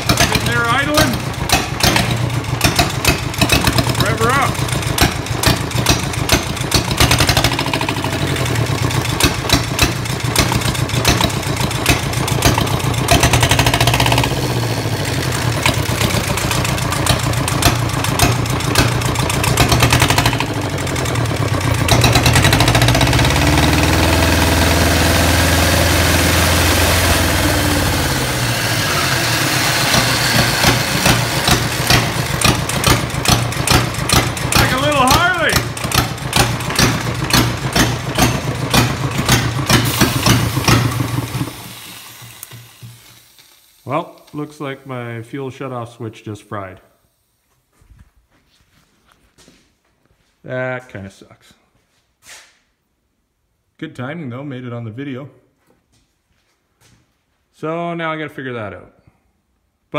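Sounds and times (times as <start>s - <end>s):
diesel engine revving: 0.0s - 44.9s.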